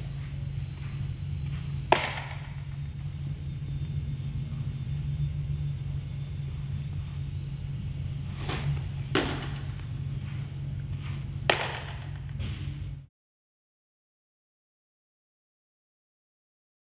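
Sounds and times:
baseball impacts: 0:00.0 - 0:03.6, 0:08.1 - 0:12.9
low rumble: 0:00.0 - 0:13.1.

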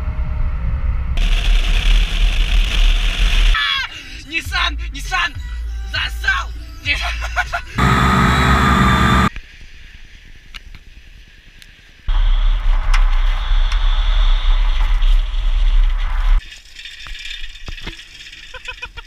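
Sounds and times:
riding noise: 0:07.8 - 0:09.3.

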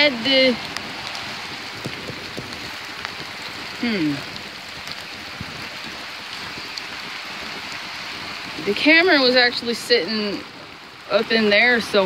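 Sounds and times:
falling rain: 0:00.0 - 0:12.0
rushing creek: 0:00.0 - 0:12.0.

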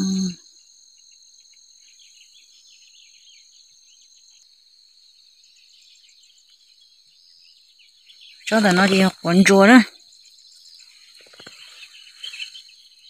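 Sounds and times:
small birds twittering: 0:00.0 - 0:13.0
insects shrilling: 0:05.2 - 0:13.0.

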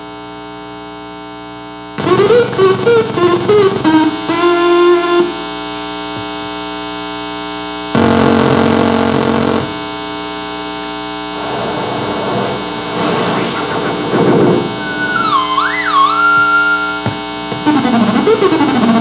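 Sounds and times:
electronic buzzing hum: 0:00.0 - 0:19.0
loud electronic buzz: 0:02.0 - 0:06.4, 0:07.6 - 0:19.0
held electronic tone: 0:11.3 - 0:18.6.

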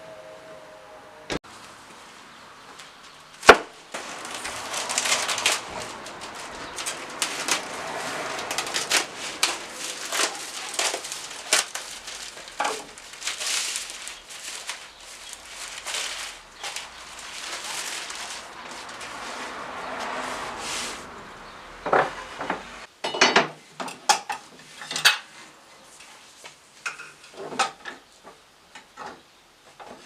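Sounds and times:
plastic film rustling: 0:01.5 - 0:22.8.

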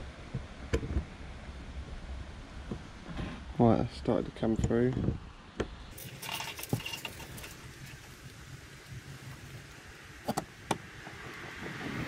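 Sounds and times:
light metal clicks and scrapes: 0:05.9 - 0:08.3.

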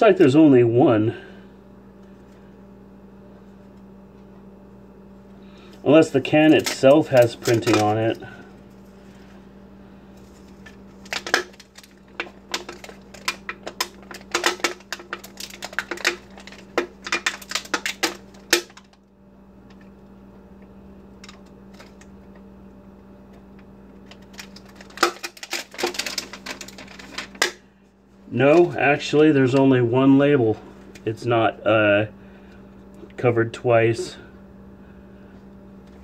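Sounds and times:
plastic label crinkling and clicking: 0:06.1 - 0:08.3, 0:10.2 - 0:19.0, 0:21.2 - 0:22.4, 0:23.3 - 0:27.6.

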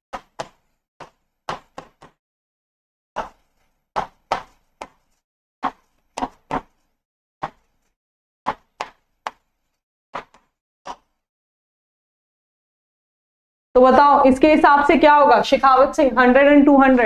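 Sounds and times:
marker pen tapping on board: 0:00.1 - 0:02.2, 0:03.2 - 0:07.9, 0:08.5 - 0:11.1.

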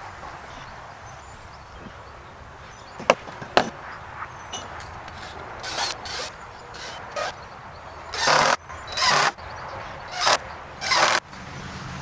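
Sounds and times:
sharp wooden knocks: 0:03.0 - 0:03.8, 0:08.1 - 0:09.4, 0:10.1 - 0:11.2
wood scraping and rubbing: 0:04.6 - 0:07.4, 0:08.1 - 0:09.4, 0:10.1 - 0:11.2.

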